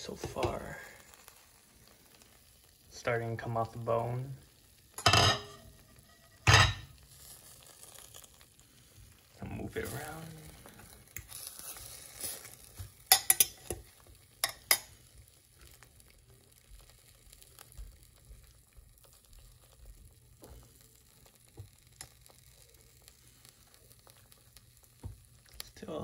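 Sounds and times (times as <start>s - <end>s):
metal fork clinking on pot: 5.0s - 5.7s, 13.1s - 13.8s, 14.4s - 14.9s.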